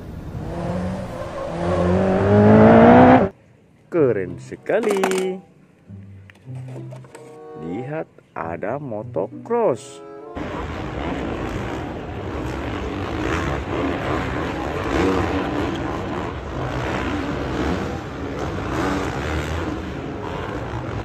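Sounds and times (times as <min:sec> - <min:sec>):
motocross bike engines: 0:10.4 - 0:21.0.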